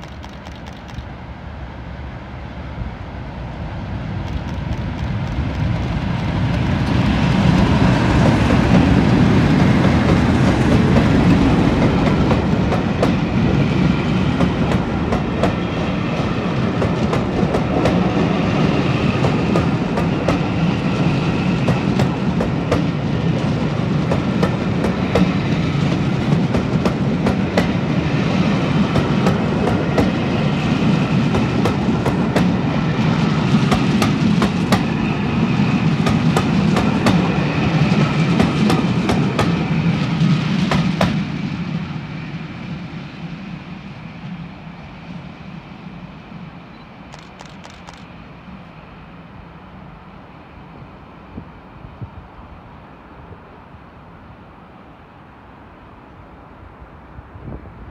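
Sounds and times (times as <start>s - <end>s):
train wheels clicking over rail joints: 0.0s - 1.2s, 4.2s - 32.6s, 33.4s - 35.1s, 35.7s - 41.2s, 47.1s - 48.1s
diesel locomotives passing: 0.0s - 57.9s.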